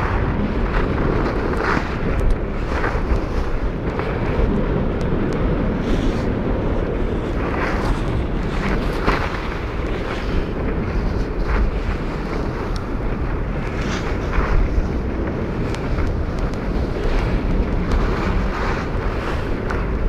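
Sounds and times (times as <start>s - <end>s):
skis scraping on snow: 0.0s - 20.0s
wind buffeting microphone: 0.0s - 20.0s.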